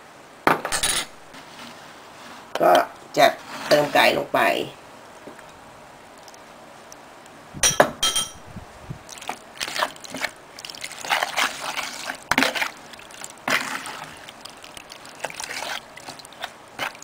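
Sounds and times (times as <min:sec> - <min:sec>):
spoon stirring wet food in bowl: 0:09.0 - 0:17.0.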